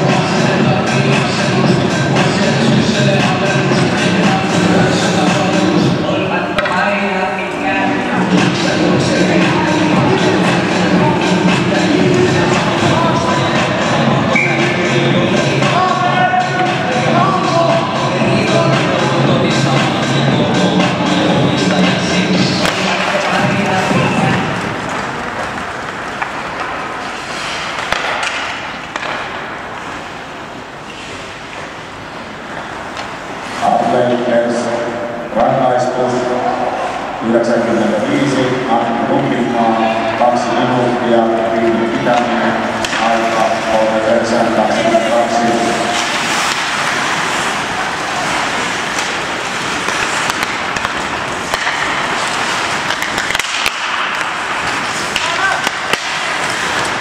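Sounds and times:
hockey sticks and puck clacking: 0:00.0 - 0:06.9, 0:08.0 - 0:30.2, 0:30.8 - 0:33.6, 0:39.4 - 0:57.0
skates hissing on ice: 0:26.9 - 0:28.0, 0:30.8 - 0:31.4, 0:44.8 - 0:57.0
skate blades hissing on ice: 0:27.0 - 0:28.0.

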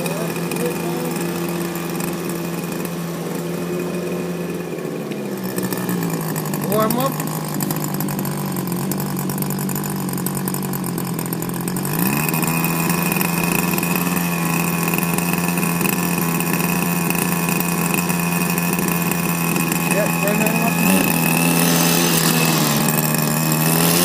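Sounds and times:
two-stroke engine idling: 0:00.0 - 0:24.0
high whine: 0:11.2 - 0:24.0.

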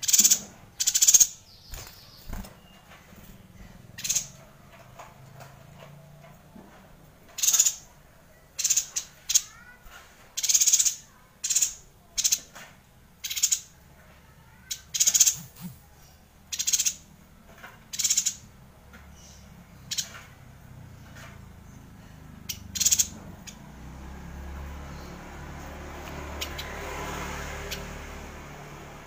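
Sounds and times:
bird high-pitched trills: 0:14.6 - 0:15.8.

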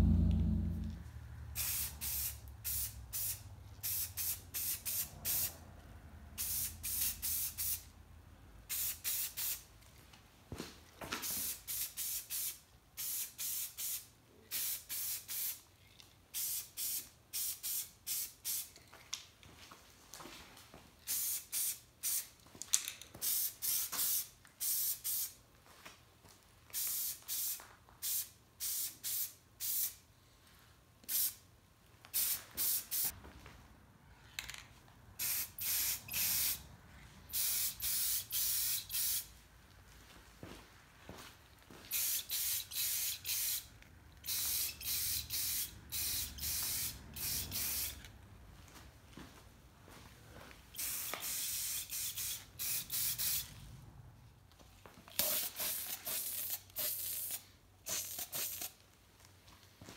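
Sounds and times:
spray paint hissing bursts: 0:01.6 - 0:05.6, 0:06.4 - 0:07.9, 0:08.7 - 0:09.7, 0:11.2 - 0:15.6, 0:16.3 - 0:18.7, 0:21.1 - 0:22.3, 0:23.2 - 0:25.4, 0:26.8 - 0:30.0, 0:31.1 - 0:31.4, 0:32.1 - 0:33.1, 0:35.2 - 0:36.6, 0:37.3 - 0:39.3, 0:41.9 - 0:48.1, 0:50.8 - 0:53.5, 0:55.1 - 0:58.8.

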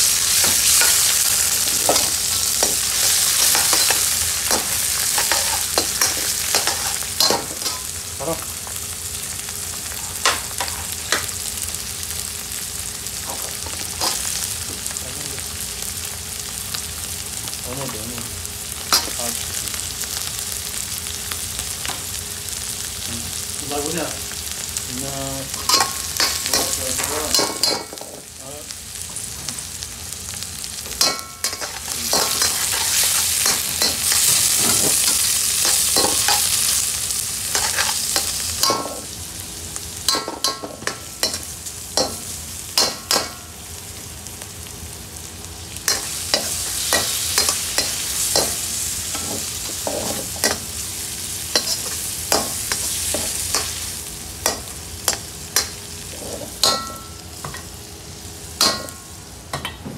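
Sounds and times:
food sizzling in a wok: 0:00.0 - 0:59.8.

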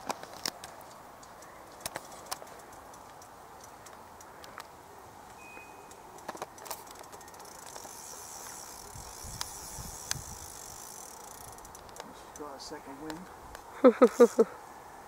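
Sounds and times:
fishing reel whirring: 0:05.5 - 0:12.4, 0:14.1 - 0:14.5
fishing reel clicks: 0:05.8 - 0:13.2, 0:14.2 - 0:14.4.

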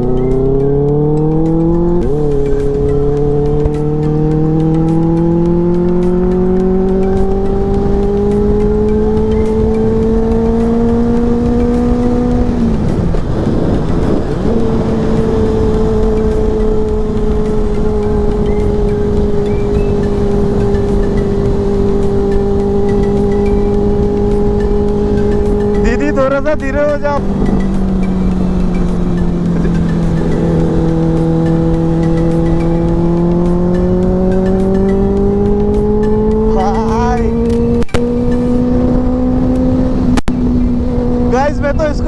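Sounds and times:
motorcycle engine revving: 0:00.0 - 0:42.0
wind rushing: 0:09.6 - 0:25.9.

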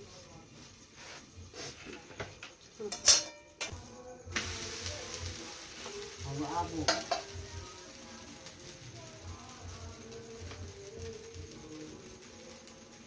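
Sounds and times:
batter sizzling in a pan: 0:00.0 - 0:13.0
metal pan lid clanking: 0:02.9 - 0:03.7, 0:06.8 - 0:07.3.

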